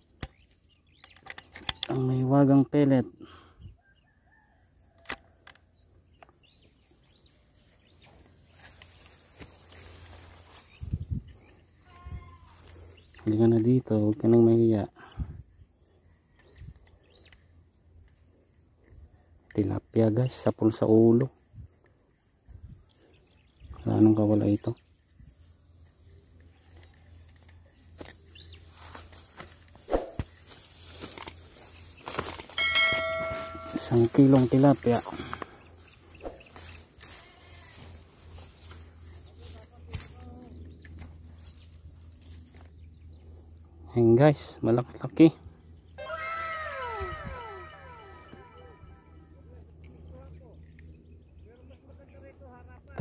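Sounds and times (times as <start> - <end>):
footsteps through tall grass: 6.6 - 13.1, 27.7 - 42.7
grass stalks rustling: 7.4 - 13.2, 25.2 - 42.7.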